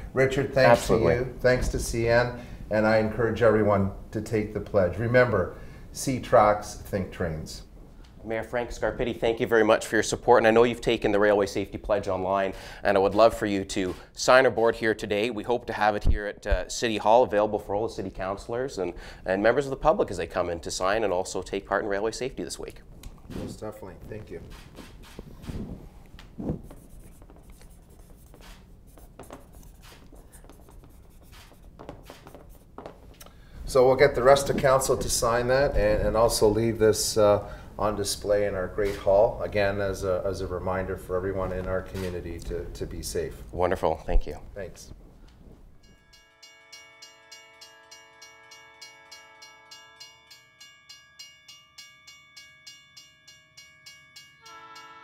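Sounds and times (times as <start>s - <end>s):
pen scratching on board: 26.4s - 32.8s
held musical chord: 45.9s - 55.0s.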